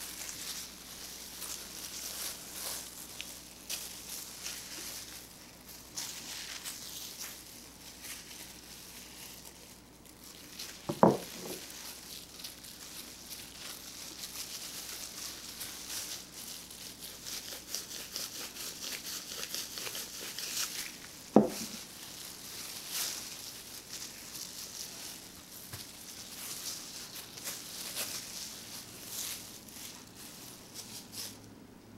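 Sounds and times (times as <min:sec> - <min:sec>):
plastic glove crinkling: 0:00.0 - 0:31.6
dull knocks: 0:21.4 - 0:21.7.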